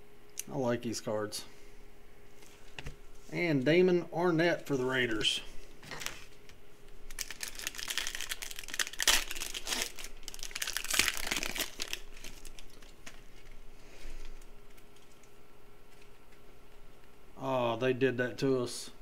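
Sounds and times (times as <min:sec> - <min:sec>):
card pack wrapper tearing: 0:07.1 - 0:13.5
cards rustling: 0:07.1 - 0:15.2.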